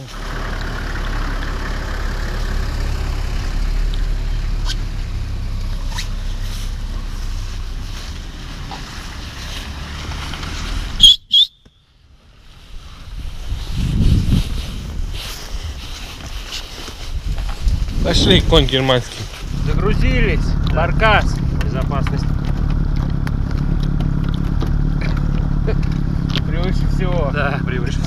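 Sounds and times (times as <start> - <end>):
wind buffeting microphone: 12.6 - 16.4, 17.0 - 26.2.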